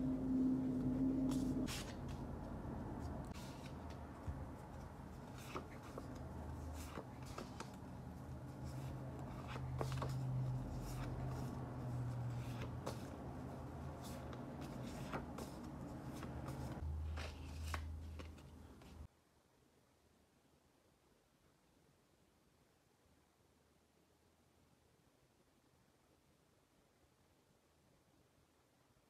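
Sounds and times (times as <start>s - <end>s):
low steady hum: 0.0s - 19.1s
paper cards rustling: 1.3s - 19.1s.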